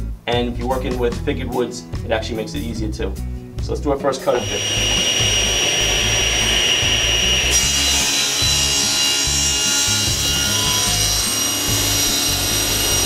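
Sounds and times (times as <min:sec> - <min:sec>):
saw blade cutting wood: 0:04.3 - 0:13.0
table saw high whine: 0:04.3 - 0:13.0.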